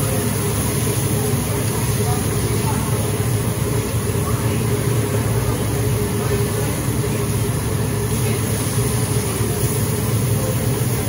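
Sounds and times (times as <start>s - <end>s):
exhaust fan hum: 0.0s - 11.0s
steak sizzling on griddle: 0.1s - 3.2s, 8.1s - 10.8s.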